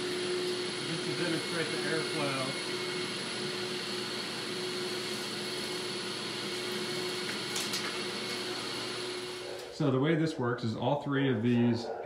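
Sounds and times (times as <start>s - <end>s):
vacuum rushing air with whine: 0.0s - 4.8s.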